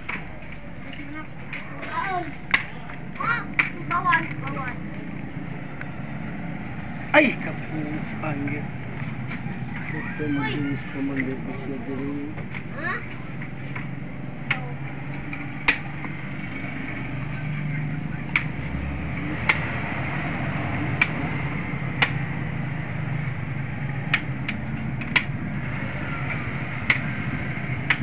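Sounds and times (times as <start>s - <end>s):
sharp clicks or knocks: 13.7s - 16.7s, 18.2s - 19.8s, 21.9s - 22.4s, 24.0s - 25.6s, 26.3s - 28.0s.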